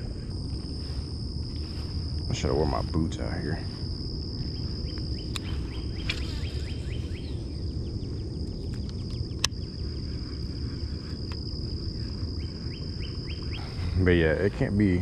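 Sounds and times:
insects trilling: 0.0s - 15.0s
low rumble: 0.0s - 15.0s
sharp click: 5.3s - 6.4s.

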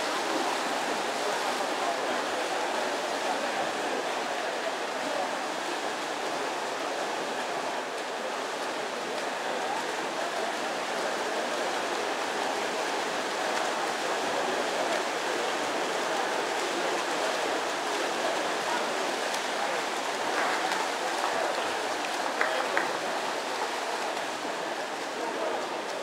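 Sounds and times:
swimmers splashing water: 12.4s - 26.0s.

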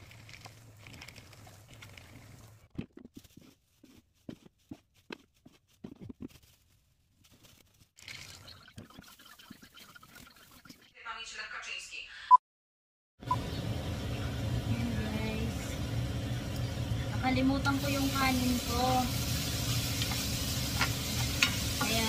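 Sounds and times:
plastic bag rustling: 0.0s - 9.1s.

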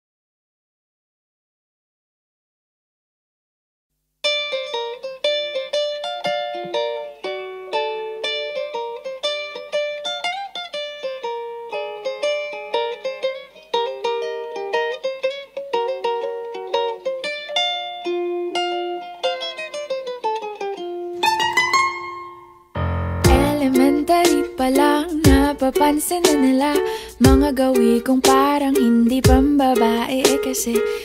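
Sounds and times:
acoustic strings pop ballad: 23.2s - 31.0s.

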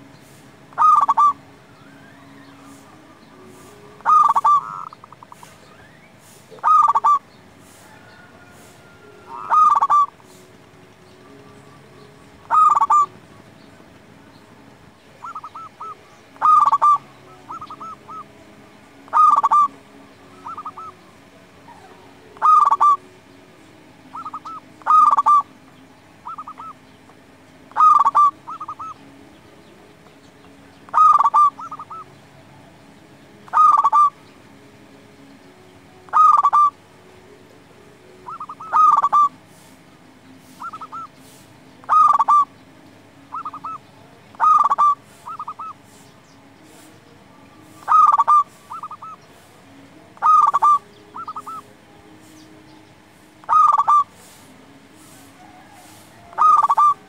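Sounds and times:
dove trilled cooing: 0.7s - 1.4s, 2.0s - 10.7s, 11.6s - 13.5s, 15.1s - 18.3s, 19.1s - 21.0s, 21.6s - 23.1s, 24.1s - 25.5s, 26.2s - 26.8s, 27.7s - 29.0s, 30.8s - 32.1s, 33.4s - 34.2s, 36.1s - 36.8s, 38.2s - 39.7s, 40.4s - 42.6s, 43.3s - 46.1s, 47.6s - 49.4s, 50.1s - 52.4s, 53.4s - 57.0s
faint short trilling calls: 0.7s - 2.9s, 4.0s - 7.9s, 8.6s - 10.3s, 12.4s - 13.1s, 15.2s - 18.2s, 19.1s - 19.8s, 21.7s - 23.0s, 24.1s - 25.5s, 26.2s - 26.8s, 27.7s - 29.0s, 30.9s - 32.1s, 33.5s - 34.2s, 36.1s - 36.7s, 38.3s - 39.4s, 40.5s - 42.5s, 43.3s - 43.8s, 44.4s - 46.1s, 47.8s - 49.2s, 50.2s - 51.7s, 53.4s - 54.4s, 55.0s - 57.0s.

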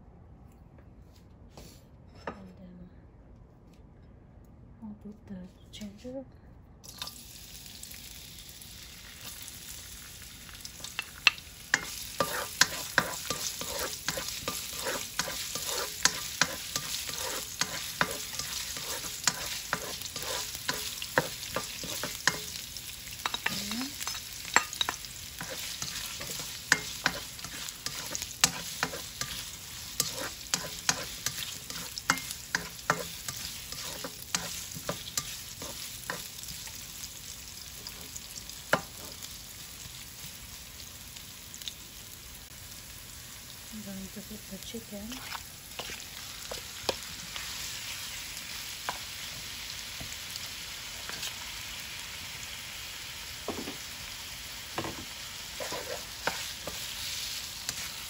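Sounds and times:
ginger and onion sizzling: 6.8s - 58.0s
spatula scraping pan: 11.7s - 22.6s, 23.2s - 36.4s, 45.1s - 47.9s, 54.8s - 58.0s.

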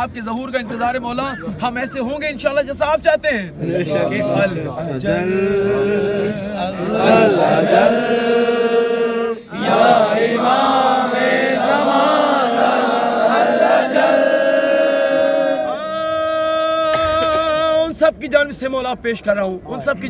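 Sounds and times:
men chanting devotional melody: 3.5s - 18.0s.

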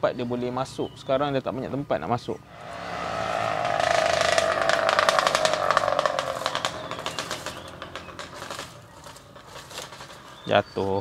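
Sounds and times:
electric motor whining: 2.5s - 8.7s
wheels clicking and clattering: 3.3s - 10.5s.

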